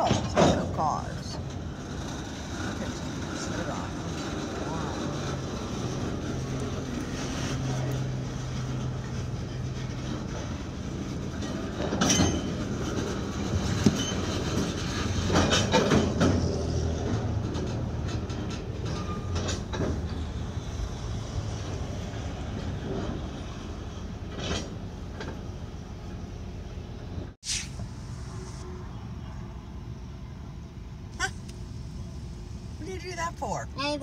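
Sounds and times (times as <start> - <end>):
metallic clanks and squeaks: 0.0 - 20.4
freight cars rolling on track: 0.0 - 27.4, 28.3 - 34.0.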